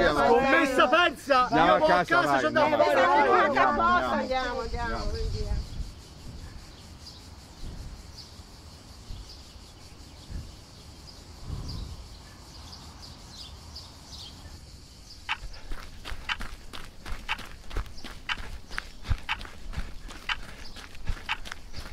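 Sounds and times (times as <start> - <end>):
insects chirring: 0.0 - 21.9
bird-like chirps: 5.6 - 21.9
footsteps on paved road: 15.3 - 21.9.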